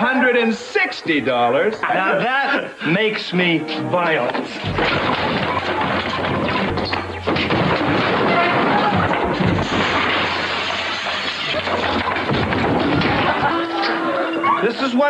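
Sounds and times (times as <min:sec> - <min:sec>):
music playing: 0:03.1 - 0:07.3
bodies thrown into chairs: 0:04.4 - 0:13.6
wooden table breaking: 0:04.4 - 0:14.1.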